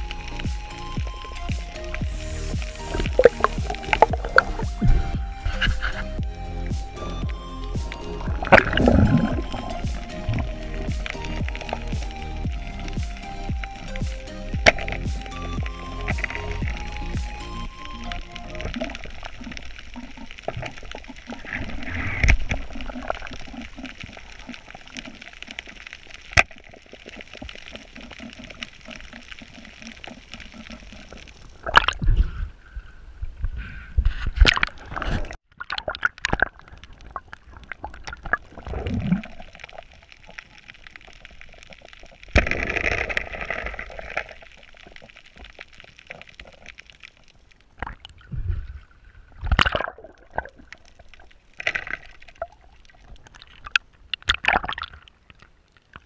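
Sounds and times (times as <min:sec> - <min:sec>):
water splashes: 0:00.0 - 0:32.2, 0:34.4 - 0:56.0
muffled underwater sloshing: 0:07.3 - 0:13.0.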